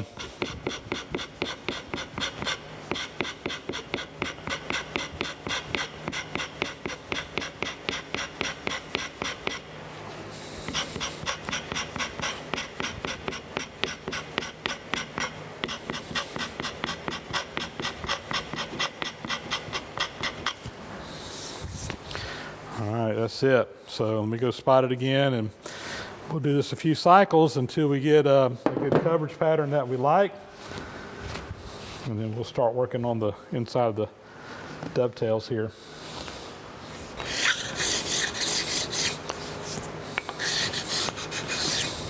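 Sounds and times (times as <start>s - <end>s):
hand scraper scraping strokes: 0.0s - 9.6s, 10.3s - 20.7s, 36.9s - 42.0s.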